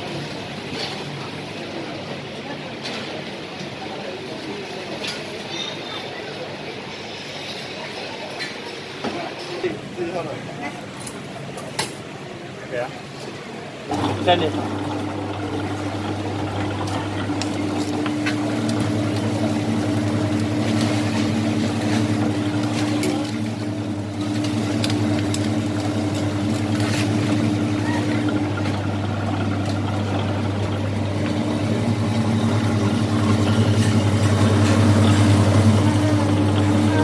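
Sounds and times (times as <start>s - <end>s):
juicer motor humming: 13.8s - 37.0s
sugarcane cracking and snapping: 16.8s - 28.7s.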